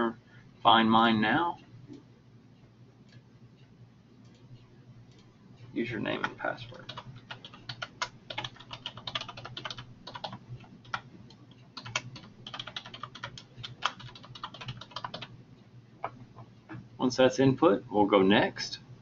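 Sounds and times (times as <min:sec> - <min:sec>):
computer keyboard typing: 0:06.1 - 0:15.3.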